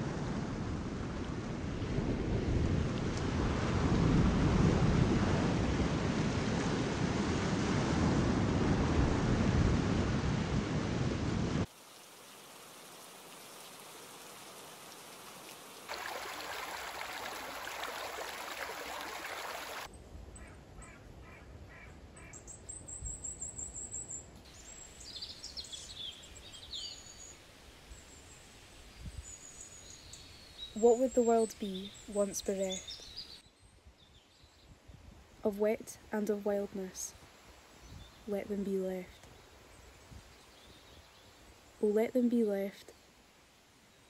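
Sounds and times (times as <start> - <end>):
stream rippling over stones: 11.7 - 19.9
surf washing onto beach: 15.9 - 19.9
birds chirping: 29.0 - 34.5.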